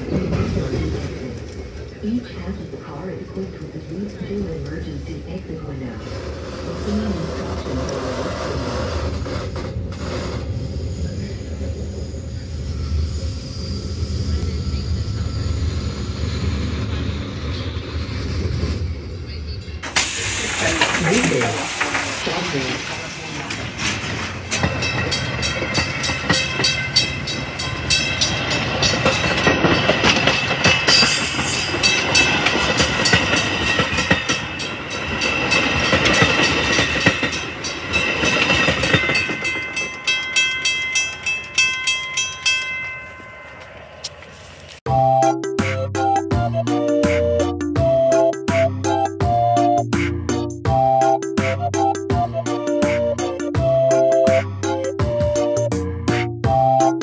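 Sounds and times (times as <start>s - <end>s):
train car rumble and hum: 0.0s - 57.0s
high-pitched whine: 10.4s - 23.6s
train wheels clacking on rail joints: 19.8s - 44.8s.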